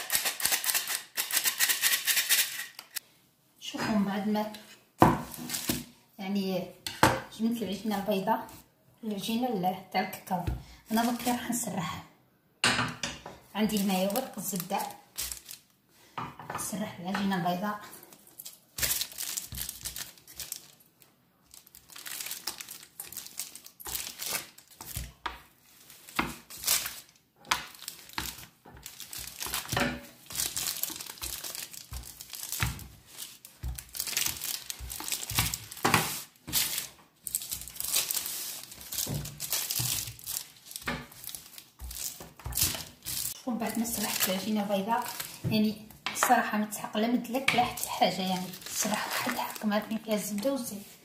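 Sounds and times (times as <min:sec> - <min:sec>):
baking paper crinkling: 0:04.5 - 0:06.0, 0:10.9 - 0:11.6, 0:13.5 - 0:16.1, 0:17.5 - 0:45.9, 0:47.2 - 0:51.0.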